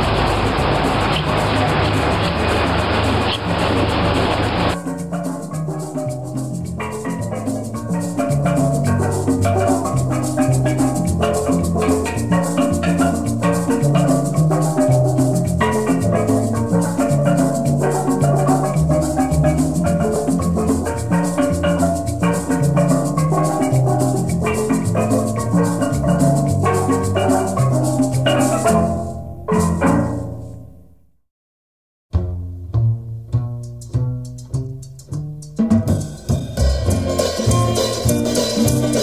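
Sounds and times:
rhythmic percussion: 0.0 - 30.6, 32.1 - 39.0
moving bass line: 0.0 - 30.8, 32.1 - 39.0
instrumental tune: 0.0 - 31.1, 32.1 - 39.0.

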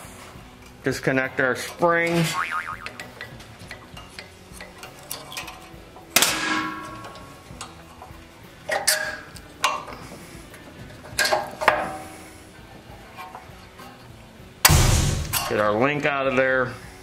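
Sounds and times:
small metal parts clicking: 3.0 - 5.8
sharp metallic clank: 6.2 - 7.2, 14.6 - 15.6.

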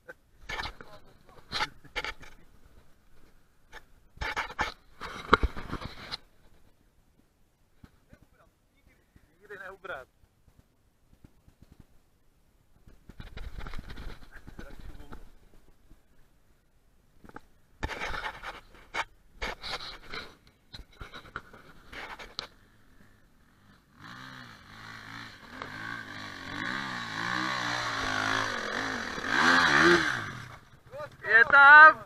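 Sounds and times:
knocks and scrapes: 0.4 - 6.7, 12.8 - 15.6, 17.2 - 22.6
dirt bike engine revving: 22.9 - 31.2.

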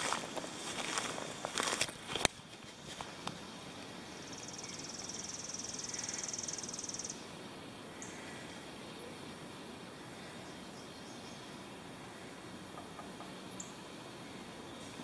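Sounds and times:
insect chirp: 0.0 - 15.0
insect trilling: 2.7 - 9.3.

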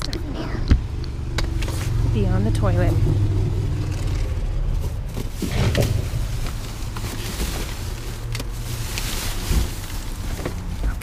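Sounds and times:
steady low rumble: 0.0 - 11.0
plastic bags rustling: 3.2 - 11.0.

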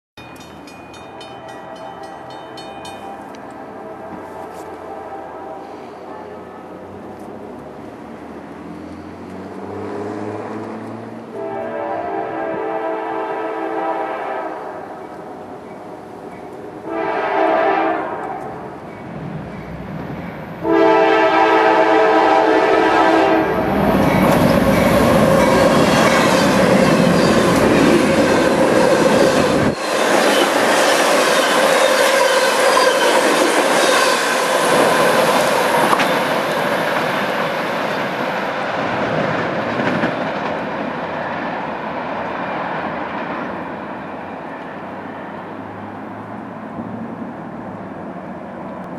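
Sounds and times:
locomotive horn chord: 3.0 - 6.0, 11.3 - 14.9, 16.8 - 18.6, 20.6 - 23.9.

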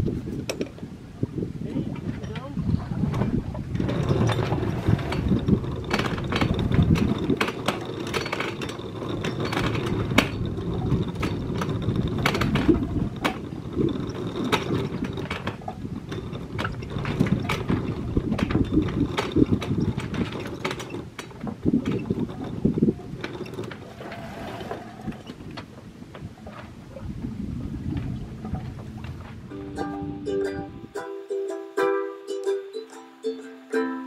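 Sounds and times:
wind and water rushing: 0.0 - 31.0
anchor chain clanking: 2.0 - 27.1.

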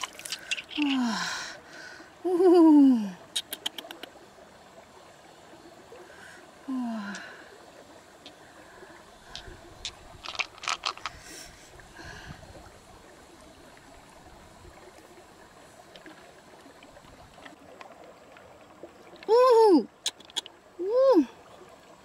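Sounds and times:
water lapping: 0.0 - 4.2.

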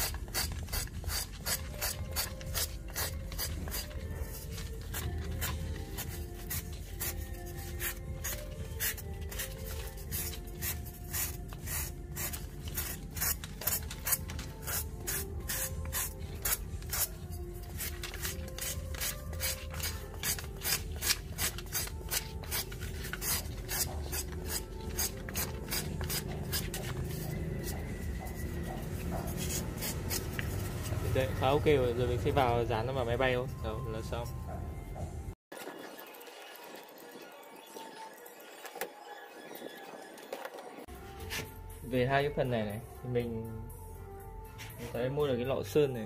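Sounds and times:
sandpaper scraping foam: 0.0 - 31.3.

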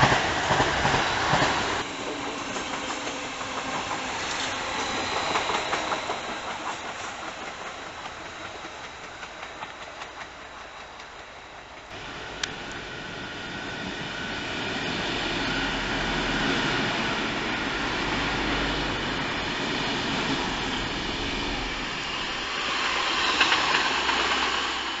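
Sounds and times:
rattling clicks from train wheels: 0.0 - 12.8, 22.0 - 25.0
train running on tracks: 0.0 - 25.0.

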